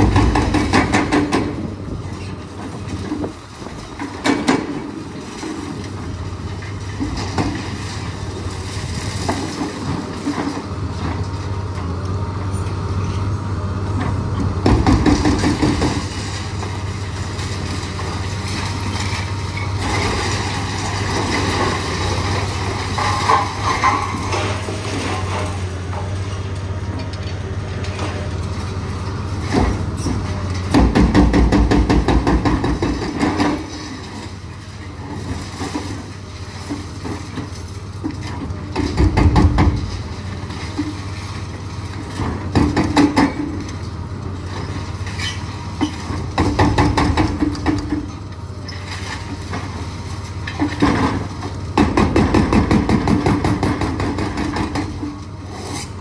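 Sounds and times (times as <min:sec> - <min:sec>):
excavator diesel engine humming: 0:00.0 - 0:56.0
hydraulic breaker hammering: 0:30.7 - 0:33.7, 0:38.8 - 0:40.0, 0:46.3 - 0:48.1, 0:50.8 - 0:55.0.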